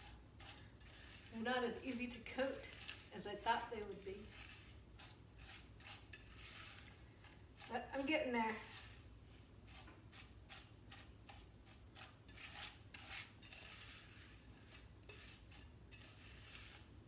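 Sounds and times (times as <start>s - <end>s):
spoon scraping a metal saucepan: 0.0s - 17.0s.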